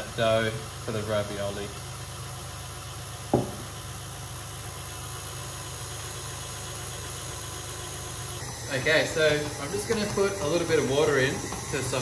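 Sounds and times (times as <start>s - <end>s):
stand mixer motor running: 0.0s - 12.0s
sharp knock: 3.3s - 3.6s.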